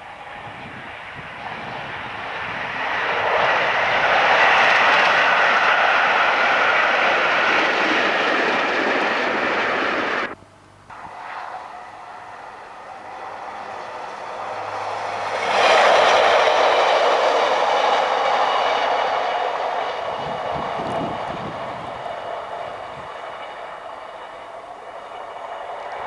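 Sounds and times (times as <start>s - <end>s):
diesel train passing: 0.0s - 26.0s.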